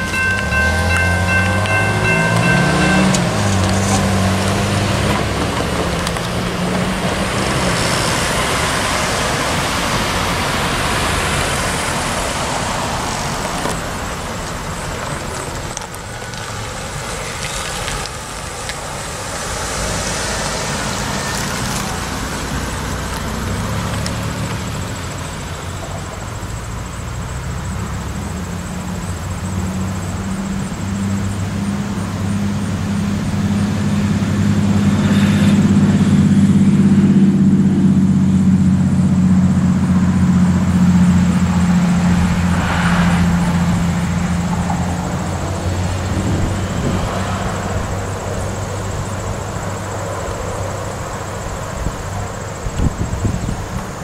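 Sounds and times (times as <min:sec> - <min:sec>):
diesel locomotive engine throbbing: 0:00.0 - 0:13.0, 0:28.5 - 0:49.9
train coaches rolling on rails: 0:00.0 - 0:54.0.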